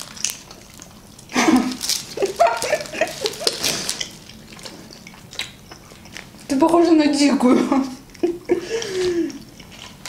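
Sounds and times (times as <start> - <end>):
plastic film crinkling: 0.0 - 6.5.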